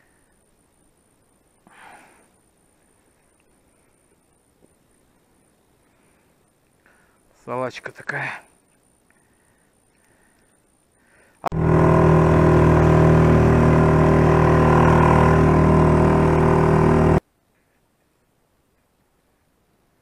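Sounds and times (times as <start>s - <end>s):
outboard motor running: 11.5s - 17.2s.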